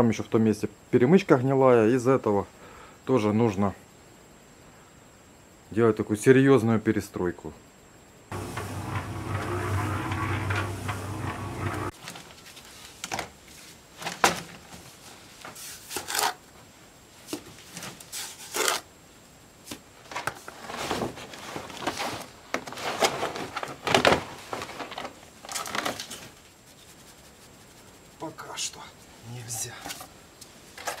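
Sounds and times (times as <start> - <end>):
plastic sheet rustling and crackling: 8.3 - 15.3, 20.0 - 28.0.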